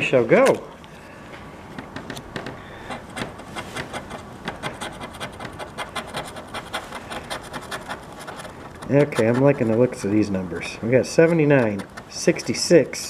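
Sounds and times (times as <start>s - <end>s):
scratching lottery ticket: 2.8s - 13.0s.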